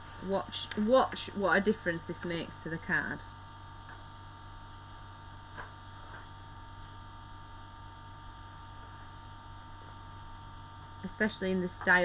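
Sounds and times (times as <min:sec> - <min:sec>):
low mains hum: 0:00.0 - 0:12.0.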